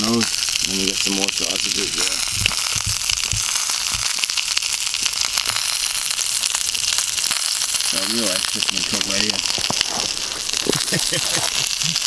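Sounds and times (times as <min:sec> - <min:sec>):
sausages sizzling in a frying pan: 0:00.0 - 0:12.0
low thumps: 0:02.2 - 0:04.3.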